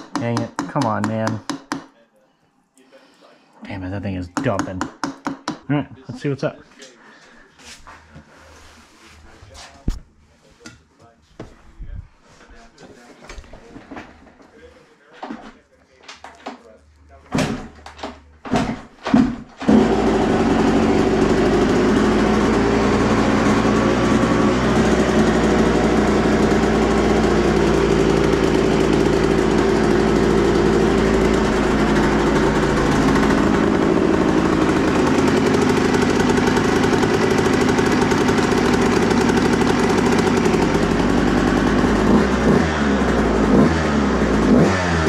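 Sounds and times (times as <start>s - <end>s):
motorcycle engine kick start: 19.2s - 45.0s
two-stroke engine idling: 19.7s - 45.0s.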